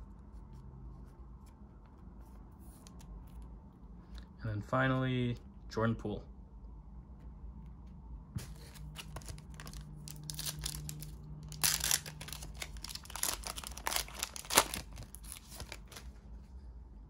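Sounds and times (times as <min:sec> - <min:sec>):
card pack wrapper tearing and crinkling: 0:08.6 - 0:16.1.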